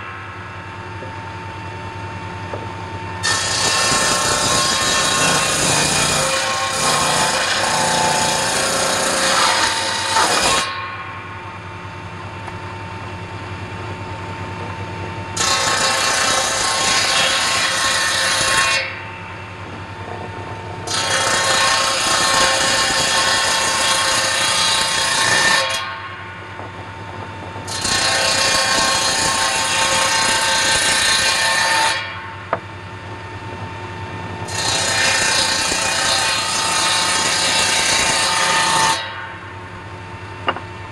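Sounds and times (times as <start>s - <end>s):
saw running free hum: 3.2s - 10.7s, 15.4s - 25.6s
circular saw cutting wood: 3.2s - 10.8s, 15.4s - 19.1s, 20.0s - 26.0s, 27.7s - 32.2s, 34.5s - 39.3s.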